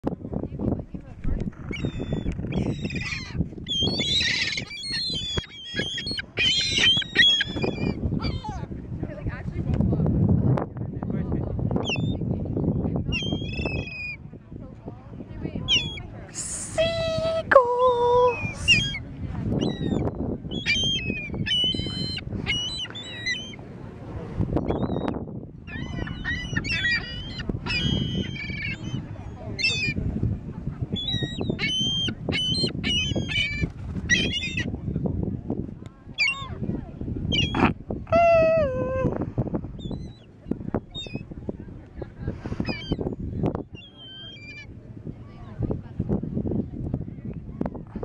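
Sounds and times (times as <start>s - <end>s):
gulls calling: 1.2s - 8.7s, 15.6s - 16.2s, 18.0s - 23.7s, 24.6s - 30.1s, 30.7s - 34.8s, 36.2s - 36.7s, 37.3s - 39.2s, 42.6s - 45.5s.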